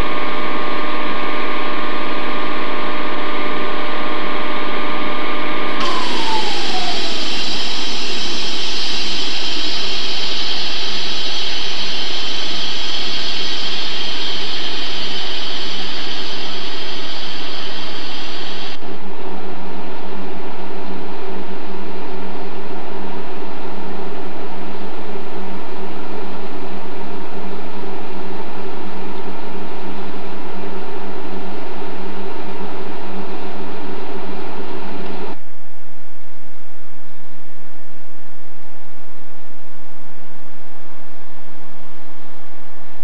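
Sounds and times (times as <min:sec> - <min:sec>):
electric locomotive humming: 0:05.8 - 0:11.8.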